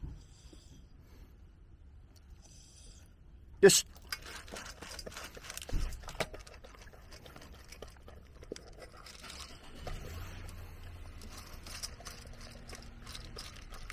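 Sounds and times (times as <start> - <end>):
dog crunching kibble in metal bowl: 3.8 - 13.9.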